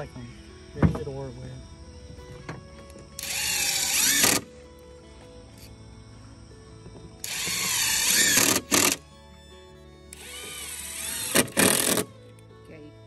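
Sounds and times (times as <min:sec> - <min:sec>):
background music: 0:00.0 - 0:13.0
cordless drill driving screws: 0:03.2 - 0:04.5, 0:07.2 - 0:09.0, 0:10.1 - 0:12.1.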